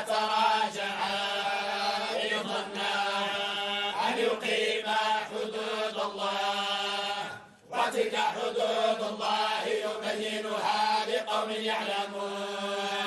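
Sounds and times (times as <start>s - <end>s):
men chanting in unison: 0.0s - 13.0s.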